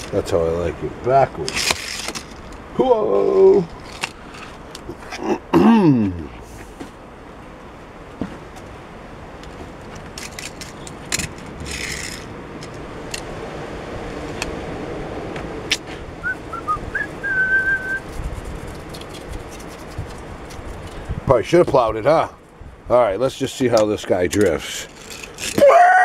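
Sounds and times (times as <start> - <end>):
light clicks and scrapes: 3.7 - 5.3, 18.0 - 21.1, 23.7 - 25.6
brush sweeping wooden track: 9.4 - 22.1
short whistle: 16.2 - 18.0.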